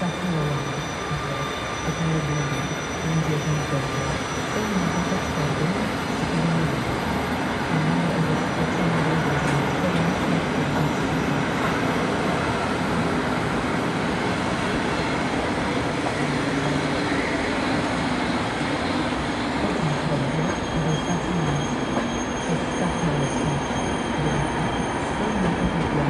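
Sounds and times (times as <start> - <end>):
high wheel squeal: 0.0 - 6.8, 14.9 - 26.0
train wheels rumbling on rails: 0.0 - 26.0.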